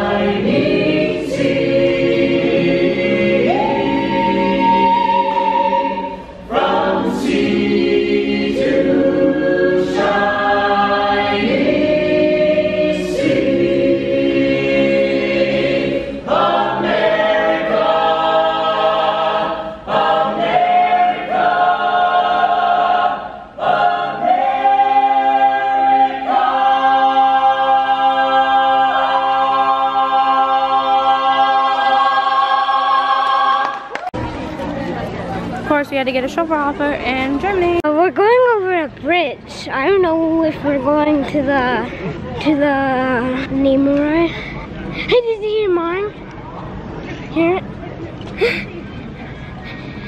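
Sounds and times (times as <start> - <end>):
a cappella ensemble singing: 0.0 - 33.9.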